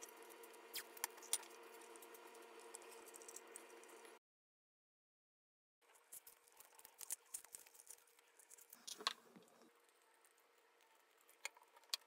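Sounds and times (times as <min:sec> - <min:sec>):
crackling rustle of tape: 0:05.8 - 0:12.0.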